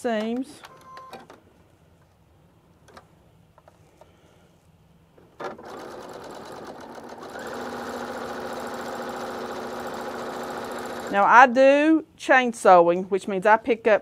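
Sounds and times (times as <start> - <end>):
sewing machine stitching: 5.4 - 11.2.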